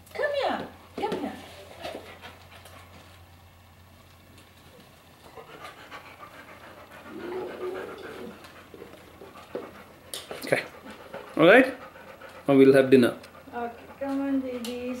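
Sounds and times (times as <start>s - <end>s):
dog panting: 1.4s - 3.2s, 5.2s - 15.0s
dog whining: 6.9s - 8.8s.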